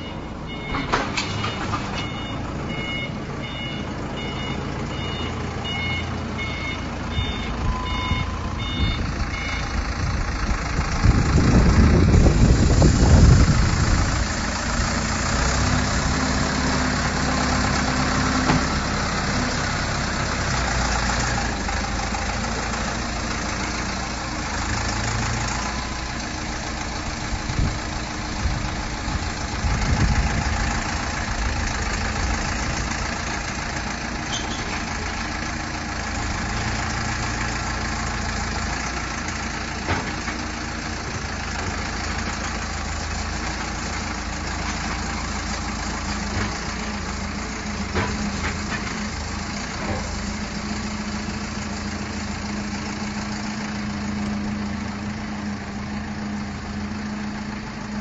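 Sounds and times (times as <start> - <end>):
repeating electronic beep alarm: 0.0 - 9.7
forklift engine running: 0.0 - 58.0.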